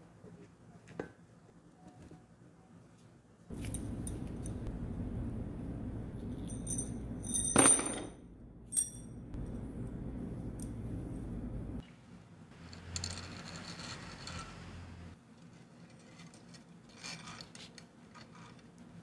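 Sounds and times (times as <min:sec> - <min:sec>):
steady low hum: 0:03.5 - 0:11.8
metal parts clattering: 0:06.4 - 0:08.1.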